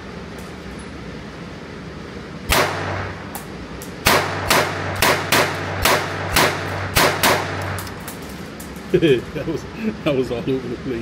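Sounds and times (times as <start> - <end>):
pistol shots echoing indoors: 2.5 - 3.2, 4.0 - 7.9.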